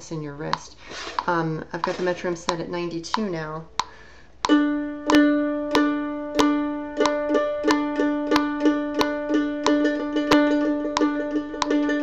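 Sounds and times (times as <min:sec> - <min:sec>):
metronome clicking: 0:00.5 - 0:12.0
mandolin picking one note: 0:04.4 - 0:12.0.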